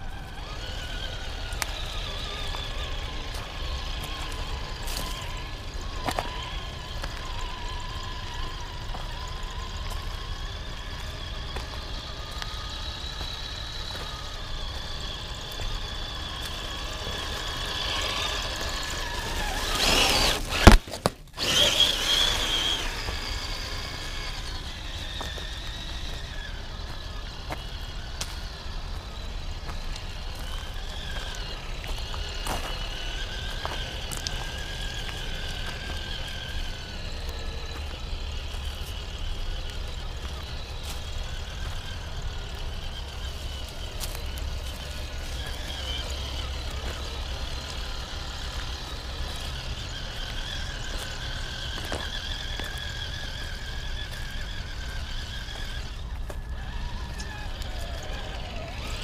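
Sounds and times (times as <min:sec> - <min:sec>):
electric motor and gearbox whining: 0:00.0 - 0:59.0.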